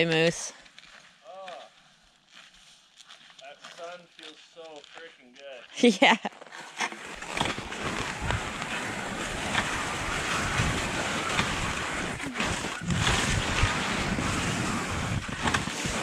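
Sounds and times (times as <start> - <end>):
skis gliding through snow: 6.4 - 16.0
wind buffeting microphone: 7.4 - 16.0.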